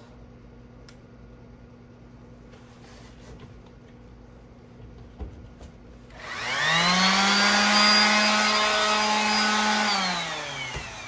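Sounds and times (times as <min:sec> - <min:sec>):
electric sander motor whine: 0:06.2 - 0:11.0.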